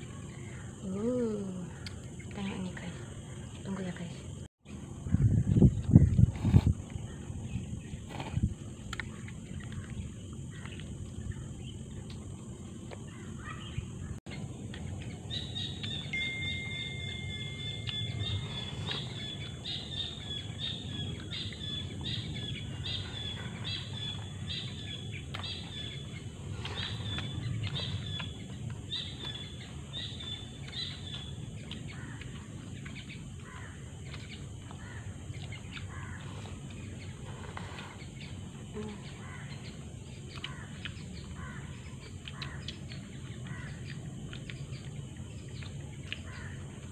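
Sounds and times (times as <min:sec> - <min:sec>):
bird chirping: 0:07.0 - 0:46.8.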